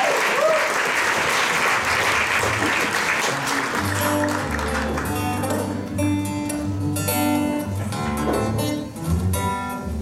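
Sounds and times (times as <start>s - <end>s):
applause: 0.0s - 5.3s
fingerpicked acoustic guitar: 3.3s - 10.0s.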